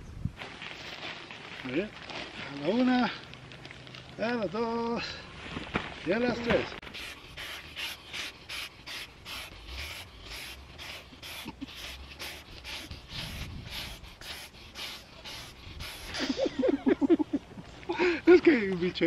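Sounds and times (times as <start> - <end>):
puffs of breath into valves: 6.9 - 16.4.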